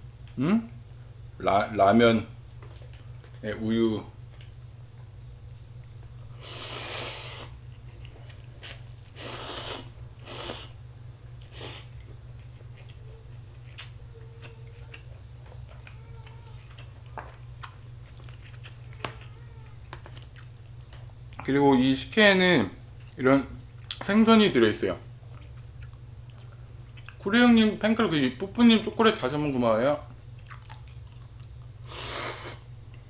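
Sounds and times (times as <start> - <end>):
steady low hum: 0.0 - 33.0
person slurping noodles: 9.2 - 10.7
chewing with wet mouth clicks: 11.4 - 21.5, 23.8 - 24.0, 25.2 - 27.2, 30.3 - 31.7.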